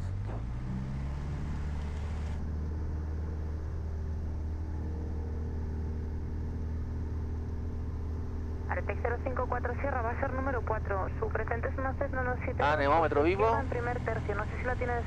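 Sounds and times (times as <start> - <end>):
aircraft piston engine at full power: 1.7 - 2.4.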